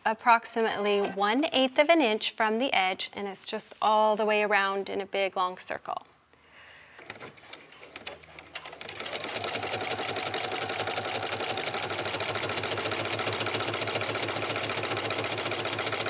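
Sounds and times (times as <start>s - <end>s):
sewing machine stitching: 7.0s - 16.0s.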